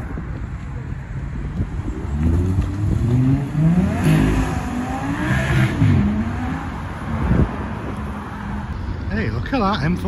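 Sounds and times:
car engine accelerating hard: 2.0s - 6.9s.

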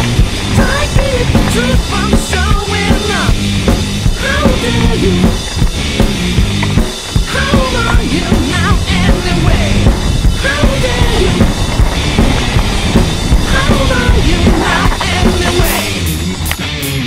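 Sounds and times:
driving drum kit: 0.0s - 17.0s
loud rock music: 0.0s - 17.0s.

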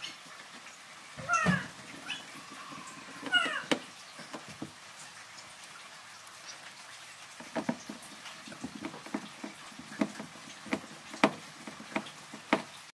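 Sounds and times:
plastic panel knocking and clicking: 3.1s - 4.8s, 7.4s - 12.8s.

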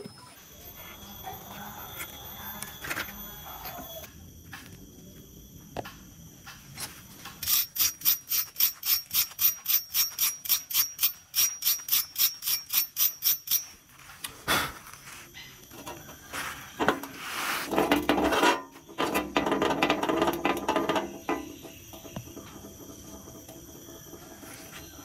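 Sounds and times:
hole saw scratching on wire brush: 16.3s - 18.6s.

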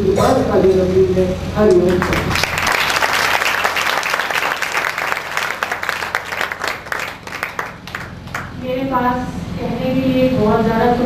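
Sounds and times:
audience applauding: 1.7s - 8.6s.

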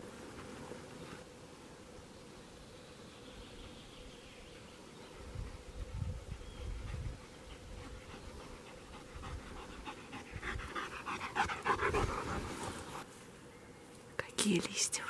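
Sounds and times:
dog panting: 6.1s - 13.0s.

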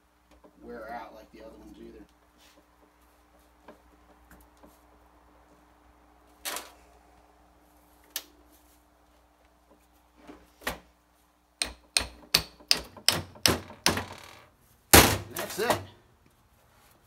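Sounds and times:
hammer knocking on metal: 11.6s - 14.1s.

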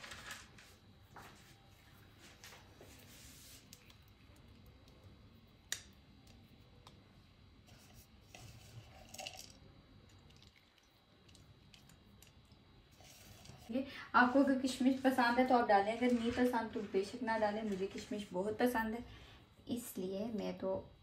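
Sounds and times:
faint handling sounds: 0.0s - 5.1s.

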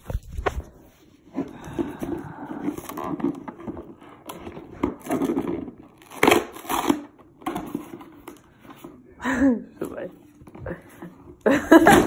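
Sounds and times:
cardboard packaging rustling and tearing: 0.0s - 8.4s.

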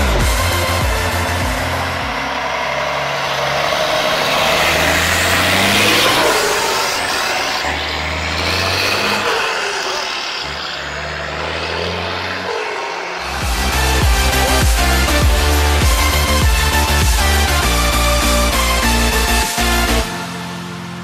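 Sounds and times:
truck diesel engine driving past: 0.0s - 21.0s.

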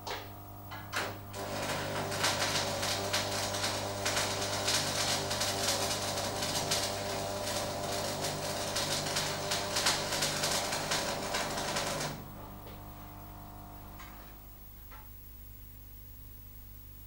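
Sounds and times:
welding arc crackling: 0.7s - 14.3s.

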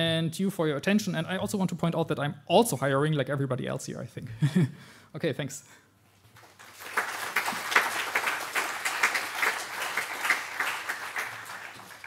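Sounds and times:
audience applauding: 6.4s - 12.0s.

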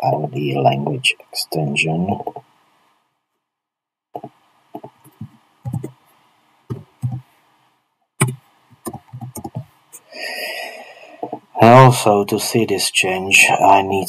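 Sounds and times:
keyboard keystrokes: 4.2s - 6.0s, 8.2s - 9.6s.

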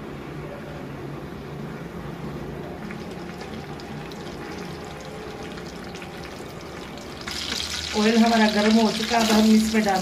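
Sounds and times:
oil sizzling and crackling: 2.8s - 10.0s.

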